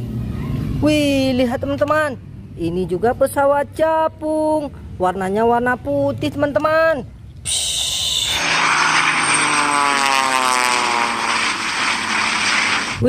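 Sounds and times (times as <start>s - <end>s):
propeller plane engines droning: 5.9s - 13.0s.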